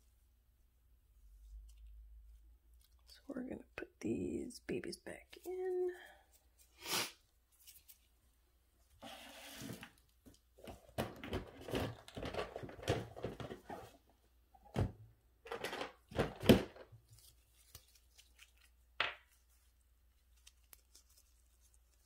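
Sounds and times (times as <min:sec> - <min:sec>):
hands rustling and crinkling materials: 0:05.2 - 0:14.1, 0:16.0 - 0:22.0.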